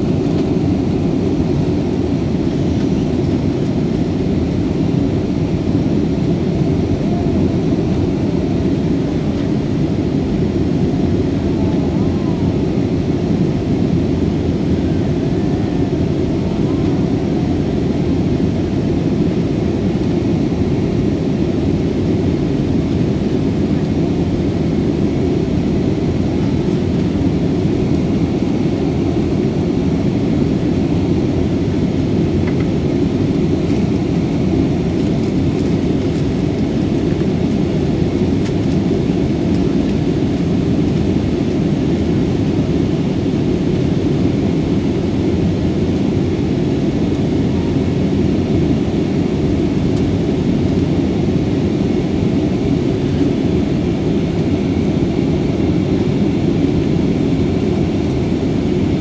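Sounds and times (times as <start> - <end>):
jet engine roar in cabin: 0.0 - 59.0.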